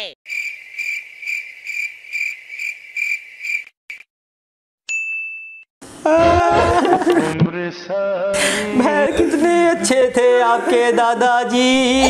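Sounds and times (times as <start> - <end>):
cricket chirping sound effect: 0.3 - 4.1.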